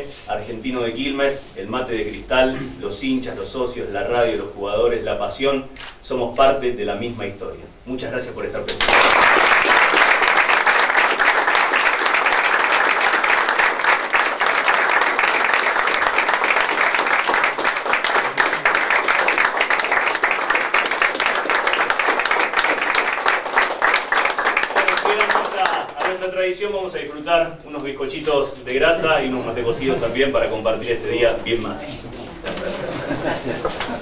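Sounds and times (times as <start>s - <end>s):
people applauding: 8.8s - 26.4s.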